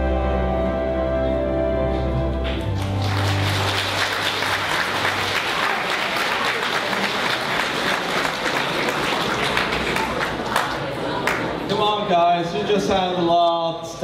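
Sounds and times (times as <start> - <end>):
audience applauding: 2.4 - 11.6.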